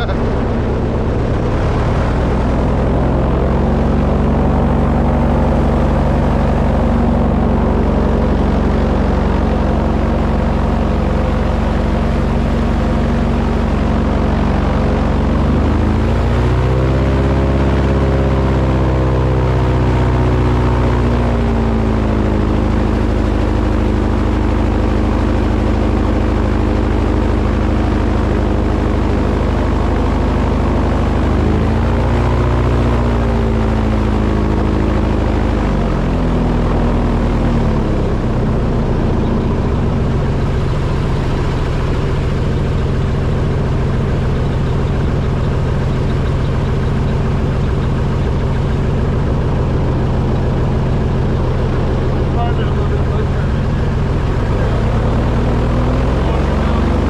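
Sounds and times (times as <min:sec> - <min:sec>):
motor running and revving: 0:00.0 - 0:57.0.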